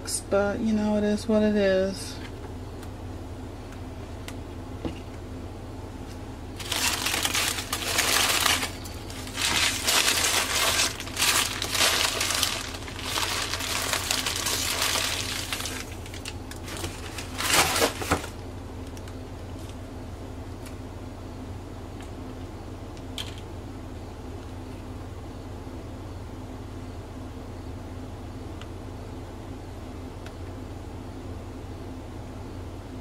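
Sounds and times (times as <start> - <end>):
paper and foil rustling and crinkling: 6.6 - 18.4.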